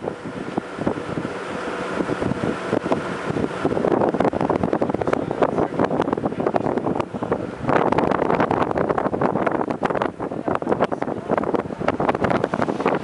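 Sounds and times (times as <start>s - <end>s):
wind buffeting microphone: 0.0s - 13.0s
rumbling crackling knocks: 3.7s - 13.0s.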